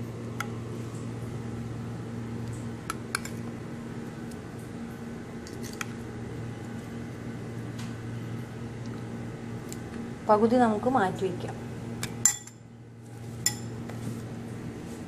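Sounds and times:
spoon clinking against ceramic bowl: 0:12.2 - 0:12.6.

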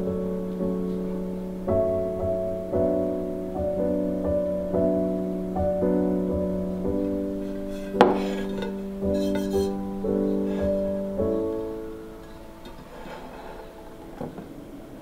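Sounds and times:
gentle piano music: 0:00.0 - 0:15.0
frying pan knocking on wooden table: 0:08.0 - 0:09.7.

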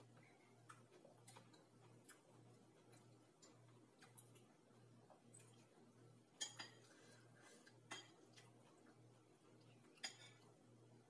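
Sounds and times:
cutlery clinking against bowls: 0:06.4 - 0:07.1, 0:07.8 - 0:08.6, 0:09.8 - 0:10.6.

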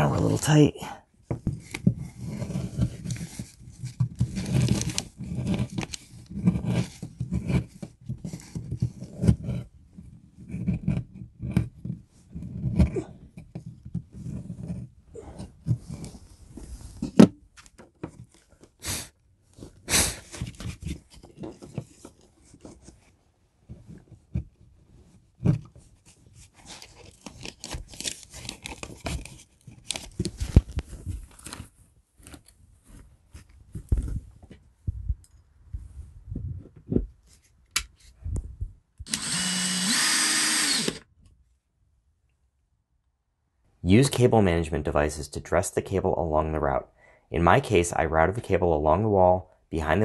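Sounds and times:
cable rustling and scraping: 0:01.4 - 0:18.8, 0:19.5 - 0:34.6
cordless drill boring into wood: 0:39.1 - 0:41.1.

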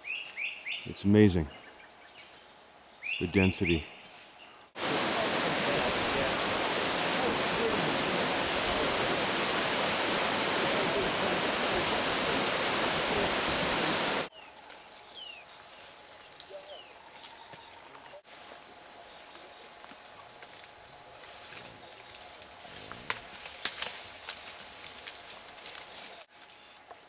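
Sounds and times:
bird chirps: 0:03.0 - 0:04.7
waterfall rushing: 0:04.8 - 0:14.3.

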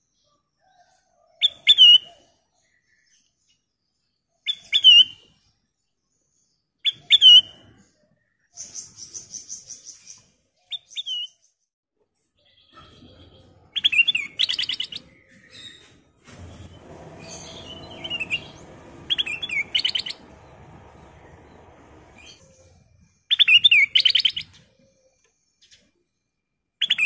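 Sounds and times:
bird calling: 0:13.0 - 0:25.2.

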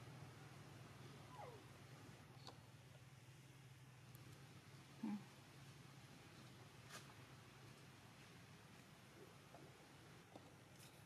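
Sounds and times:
background hiss: 0:00.0 - 0:11.0
faint steady low hum: 0:00.0 - 0:11.0.

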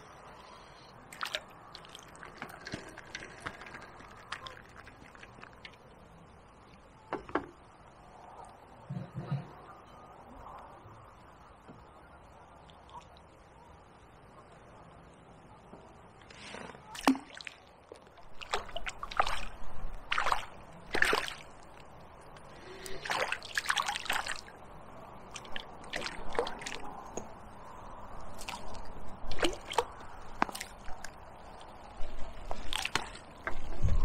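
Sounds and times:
water splashing and sloshing: 0:00.0 - 0:06.9, 0:16.2 - 0:34.0.

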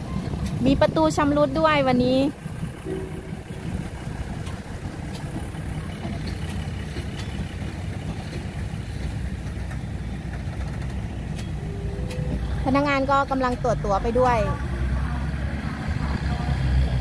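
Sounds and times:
diesel train engine rumbling: 0:00.0 - 0:17.0.

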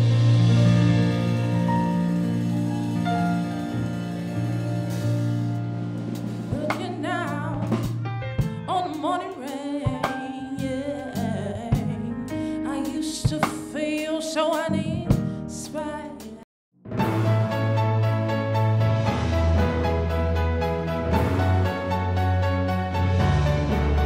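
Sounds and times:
drum and cymbal hits: 0:00.0 - 0:08.6
band playing: 0:00.0 - 0:09.5, 0:16.9 - 0:24.0
woman singing: 0:06.5 - 0:07.9, 0:08.7 - 0:16.4.

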